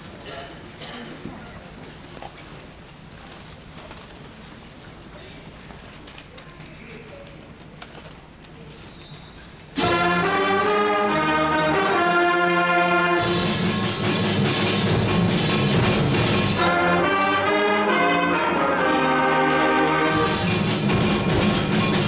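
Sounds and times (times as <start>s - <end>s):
concert band playing: 9.8s - 22.0s
percussion crashing: 9.8s - 22.0s.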